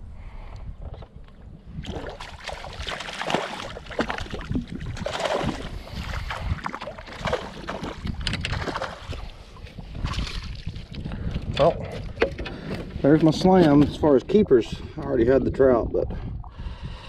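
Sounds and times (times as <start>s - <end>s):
wind rumble on microphone: 0.0s - 17.0s
water splashing against kayak hull: 1.7s - 14.4s.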